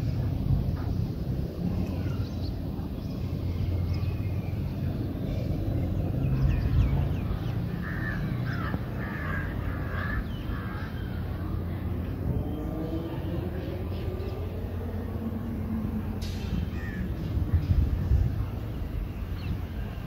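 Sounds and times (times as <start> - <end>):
birds chirping: 0.0 - 20.0
helicopters rumbling past: 0.0 - 20.0
caw-like bird calls: 7.7 - 11.2.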